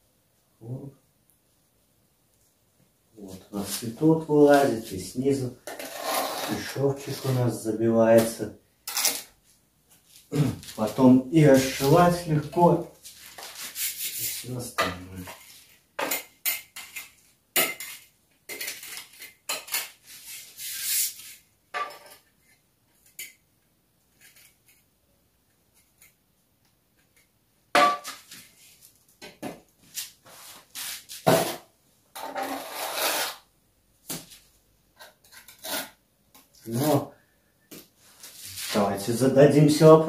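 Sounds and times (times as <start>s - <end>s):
masonry tool scraping bricks: 5.6s - 7.4s.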